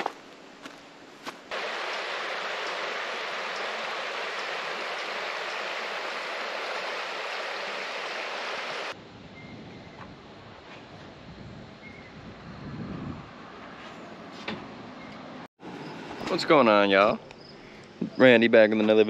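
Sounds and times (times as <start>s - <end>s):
stream water rushing: 1.5s - 9.0s.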